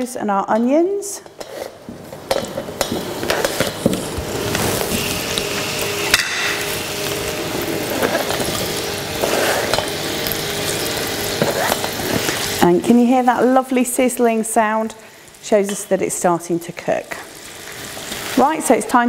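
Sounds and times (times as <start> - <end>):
food sizzling in hot oil: 1.3 - 19.0.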